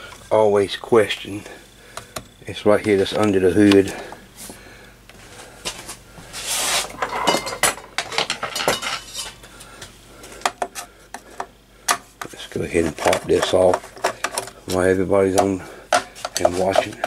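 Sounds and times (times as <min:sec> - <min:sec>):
metal tools clinking on sheet metal: 0:07.0 - 0:09.4.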